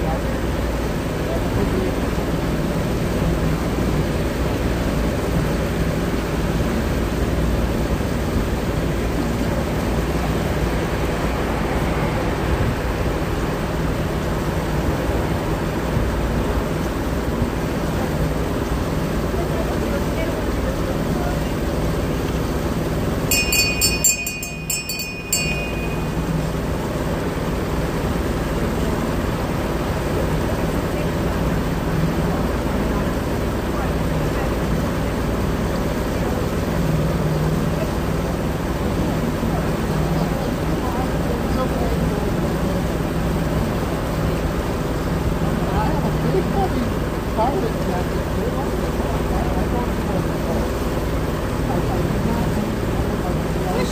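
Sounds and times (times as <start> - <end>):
boat engine droning: 0.0 - 53.9
wind and water rushing: 0.0 - 53.9
thin high tone: 23.3 - 27.0.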